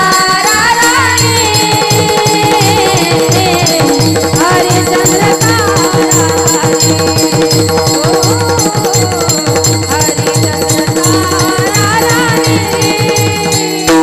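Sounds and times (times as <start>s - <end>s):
drum beat: 0.0s - 14.0s
women singing devotional melody: 0.0s - 14.0s.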